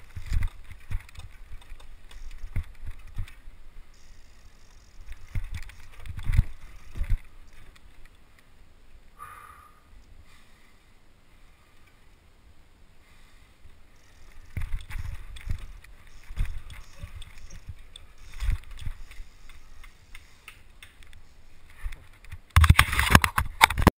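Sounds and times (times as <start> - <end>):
rubbing and knocking on microphone: 21.7 - 23.9.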